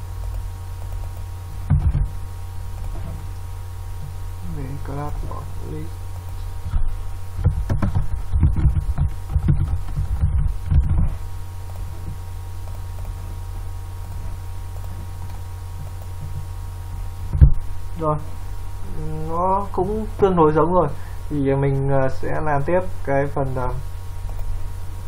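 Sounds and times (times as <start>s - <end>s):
low electrical hum: 0.0s - 25.0s
keyboard typing: 0.2s - 2.1s, 2.7s - 3.4s, 7.4s - 16.5s, 24.2s - 24.6s.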